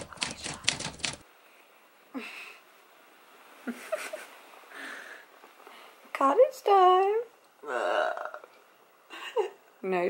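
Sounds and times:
typewriter key clicks: 0:00.0 - 0:01.2
woman groaning: 0:07.6 - 0:08.4.

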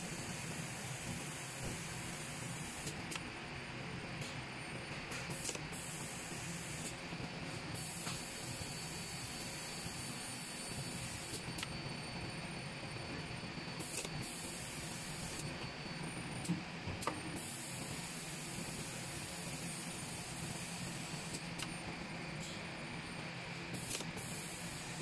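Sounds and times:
machine hissing steadily: 0:00.0 - 0:03.1, 0:05.3 - 0:07.0, 0:07.7 - 0:11.7, 0:13.2 - 0:21.7, 0:23.7 - 0:25.0.

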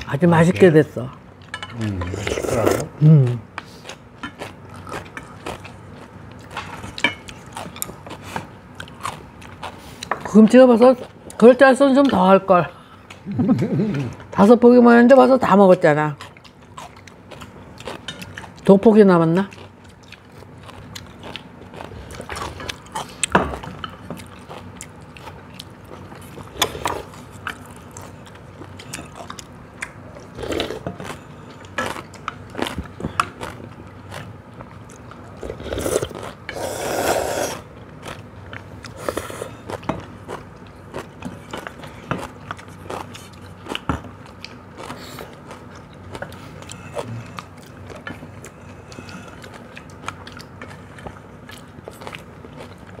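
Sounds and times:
chewing: 0:03.5 - 0:12.2, 0:15.7 - 0:18.8, 0:19.4 - 0:53.0
noodle slurp: 0:35.5 - 0:37.7.

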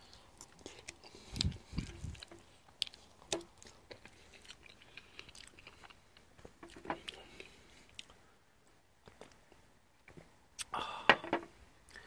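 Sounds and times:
person chewing crisp food: 0:00.0 - 0:08.3.

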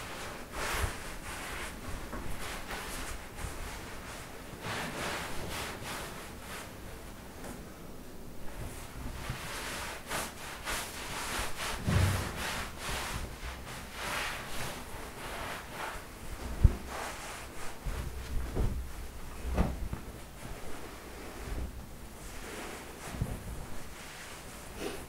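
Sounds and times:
towel rubbing on wet skin: 0:08.6 - 0:25.0.

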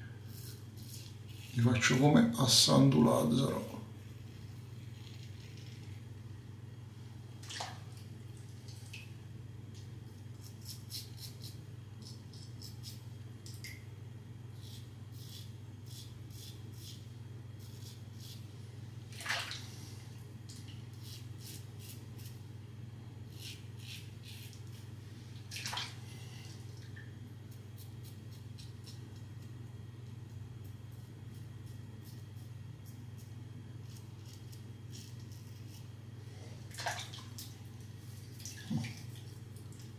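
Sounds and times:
razor scraping stubble: 0:00.2 - 0:02.0, 0:10.3 - 0:13.0, 0:14.6 - 0:18.5, 0:21.0 - 0:22.4, 0:23.3 - 0:24.9.

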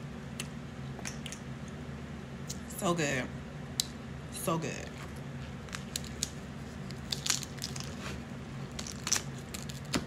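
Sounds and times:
crab shells cracking: 0:05.7 - 0:07.9, 0:08.7 - 0:10.0.

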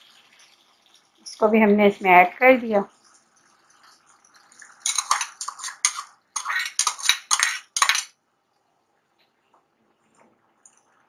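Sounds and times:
spatula scraping a pan: 0:04.8 - 0:08.1.

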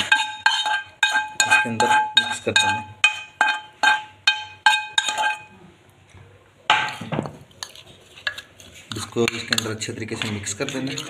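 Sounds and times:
scrape on plate: 0:00.0 - 0:04.1, 0:04.7 - 0:05.5, 0:06.9 - 0:11.0
metal utensil clinking on pan rim: 0:00.0 - 0:05.5.

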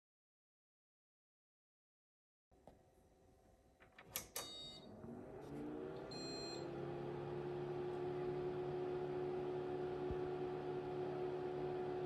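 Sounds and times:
short high beep: 0:06.1 - 0:06.6.

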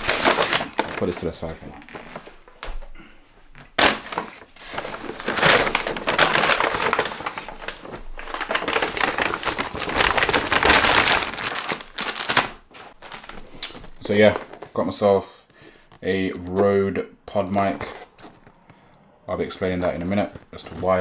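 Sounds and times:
paper crumpling and crackling: 0:00.0 - 0:02.8, 0:03.8 - 0:15.1, 0:17.6 - 0:18.6, 0:20.0 - 0:21.0.

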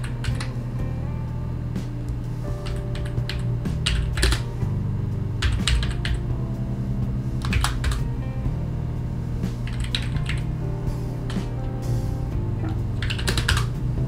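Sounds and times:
typing on computer keyboard: 0:00.0 - 0:00.5, 0:02.6 - 0:04.4, 0:05.4 - 0:06.2, 0:07.4 - 0:08.0, 0:09.7 - 0:10.4, 0:13.0 - 0:13.7
background music with low bass: 0:00.0 - 0:14.0.

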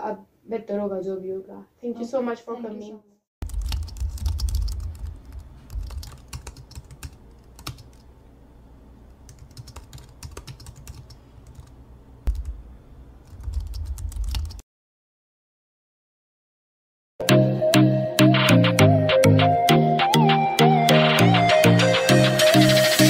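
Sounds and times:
keyboard key clicks: 0:12.3 - 0:12.6.

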